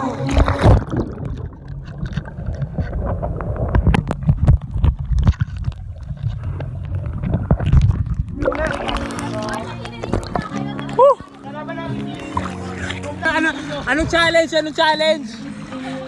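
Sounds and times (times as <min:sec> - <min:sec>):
muffled underwater rumble: 0:00.0 - 0:11.4
water clicks and crackles: 0:00.0 - 0:14.9.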